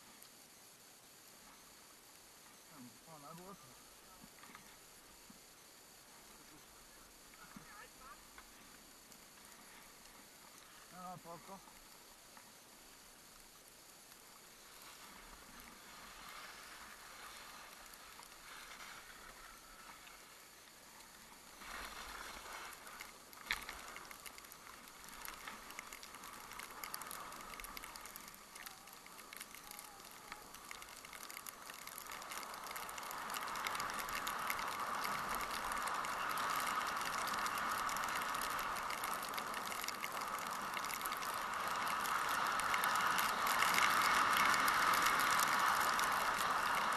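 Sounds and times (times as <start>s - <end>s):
skis scraping over snow: 14.4s - 46.9s.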